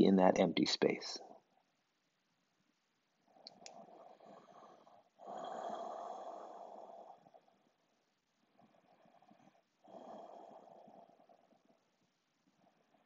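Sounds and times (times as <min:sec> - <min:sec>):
person breathing through nose: 0:03.8 - 0:07.4.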